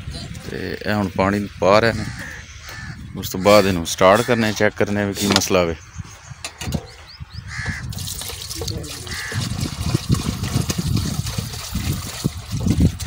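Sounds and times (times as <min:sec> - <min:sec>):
water pouring through metal funnel: 0:07.9 - 0:13.0.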